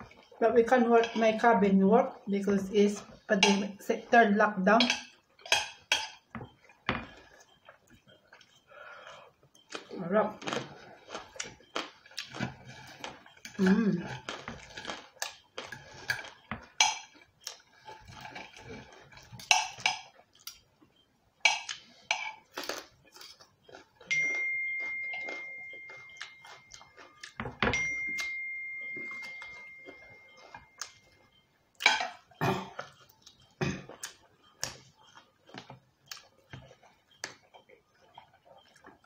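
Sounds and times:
cutlery clinking on plates: 0:04.8 - 0:07.2, 0:19.2 - 0:20.1, 0:21.4 - 0:22.5, 0:31.8 - 0:33.0
chewing: 0:04.9 - 0:27.6, 0:28.2 - 0:39.0
bell-like ring: 0:24.1 - 0:26.8, 0:27.6 - 0:30.8.

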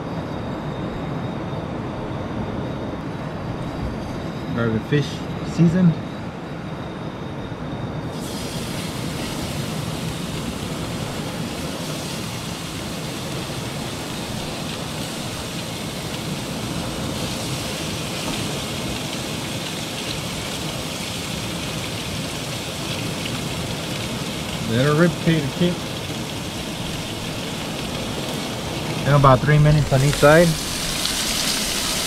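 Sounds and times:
fish sizzling in frying pan: 0:08.2 - 0:32.0.

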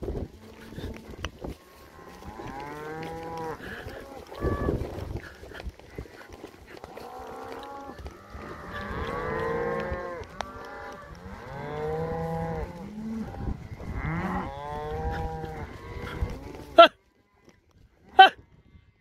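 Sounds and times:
cows mooing: 0:00.1 - 0:16.9
high cow call: 0:06.7 - 0:17.0, 0:18.0 - 0:18.4.

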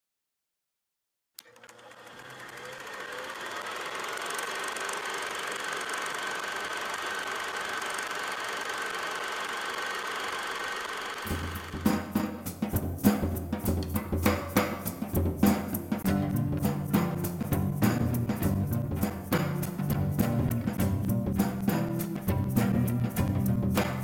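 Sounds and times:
film projector clattering: 0:01.4 - 0:12.3.

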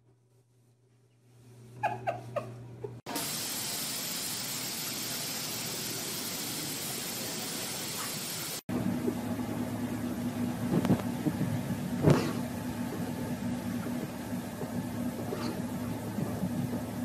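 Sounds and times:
steady hiss: 0:03.1 - 0:08.6
low hum: 0:08.4 - 0:17.0.

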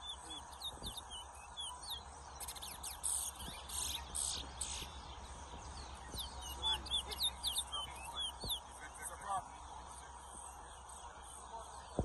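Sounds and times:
finches singing: 0:00.0 - 0:11.4.

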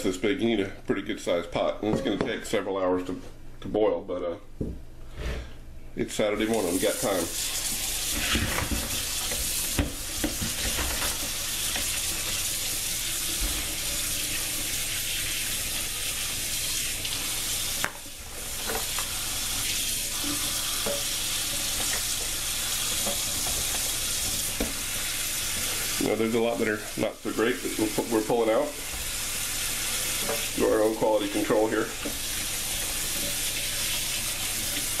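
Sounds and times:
tap running into bowl: 0:08.1 - 0:12.4, 0:20.2 - 0:24.8.

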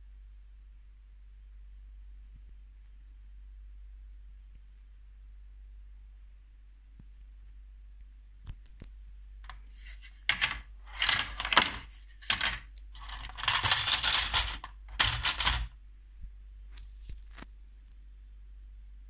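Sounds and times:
plastic toy parts clattering: 0:09.5 - 0:15.7.

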